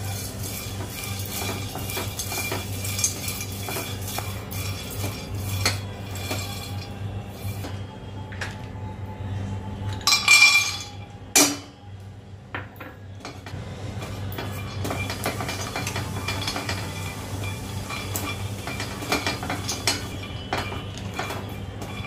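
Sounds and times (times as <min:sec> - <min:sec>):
almonds clattering in metal pan: 0:00.0 - 0:07.7, 0:14.0 - 0:22.0
almonds rattling while stirred: 0:00.0 - 0:07.7.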